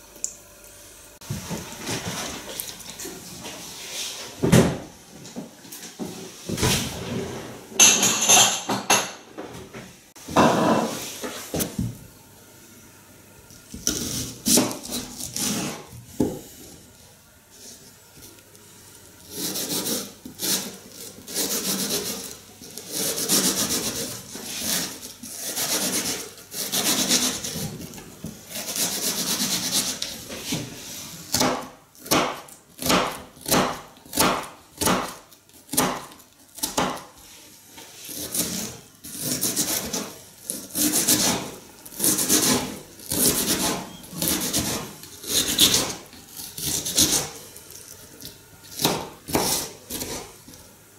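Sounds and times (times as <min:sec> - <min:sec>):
knife slicing onion: 0:13.6 - 0:16.7, 0:19.2 - 0:30.7, 0:31.3 - 0:37.2, 0:38.0 - 0:50.6.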